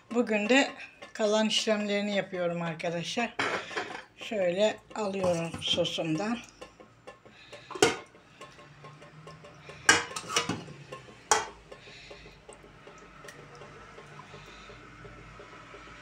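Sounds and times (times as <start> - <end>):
metal ladle clinking on pot: 5.2 - 11.8.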